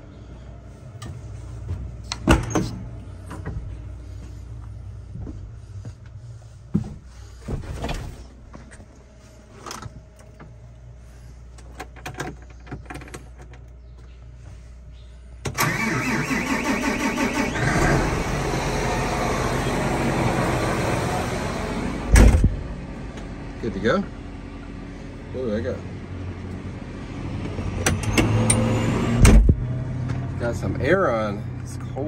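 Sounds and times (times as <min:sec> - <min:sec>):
tractor engine cranking and running: 0:15.4 - 0:22.6.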